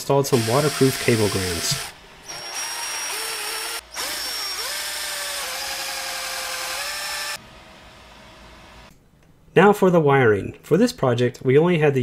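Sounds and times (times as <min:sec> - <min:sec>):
cordless drill drilling plastic: 0:00.3 - 0:07.4.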